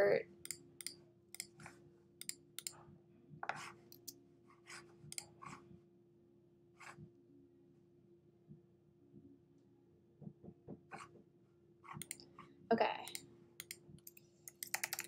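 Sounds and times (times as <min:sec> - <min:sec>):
faint steady hum: 0:00.0 - 0:15.0
computer mouse clicks: 0:00.4 - 0:01.6, 0:02.2 - 0:02.8, 0:03.4 - 0:04.2, 0:11.9 - 0:12.3, 0:13.1 - 0:15.0.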